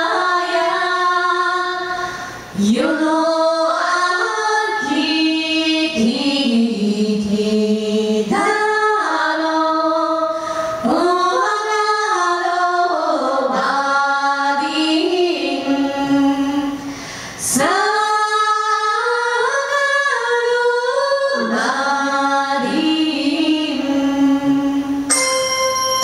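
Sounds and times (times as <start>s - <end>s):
women singing: 0.0s - 25.1s
bell-like chiming: 25.1s - 26.0s.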